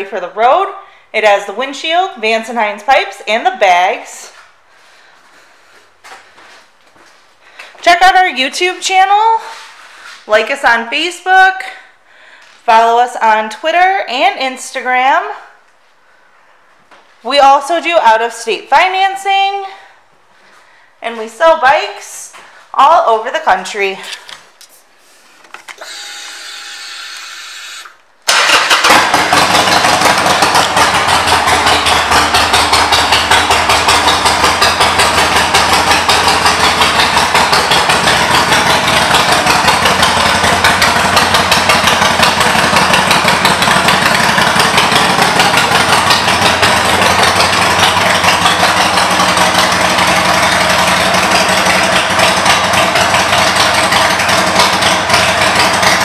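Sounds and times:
starter motor whir: 0:25.7 - 0:56.0
motorcycle engine idling: 0:28.4 - 0:56.0.

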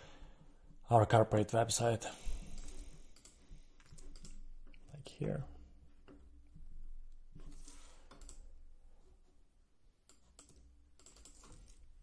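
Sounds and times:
faint keyboard keystrokes: 0:02.4 - 0:04.9, 0:07.3 - 0:08.5.

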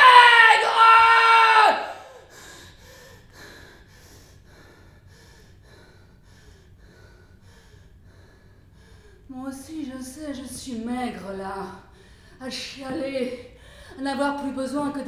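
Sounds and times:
woman shouting: 0:00.0 - 0:02.0.

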